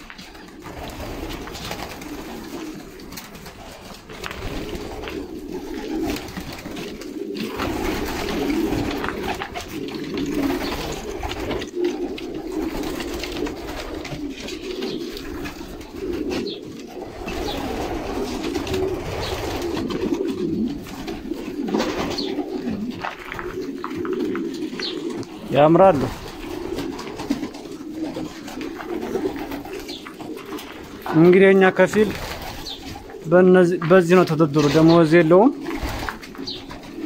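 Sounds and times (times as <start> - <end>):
pigeons cooing: 0.0 - 37.0.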